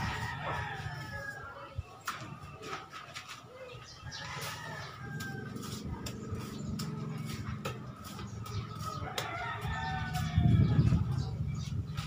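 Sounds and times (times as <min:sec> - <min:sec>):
birds chirping: 0:00.0 - 0:12.0
trowel scraping mortar: 0:04.2 - 0:09.9.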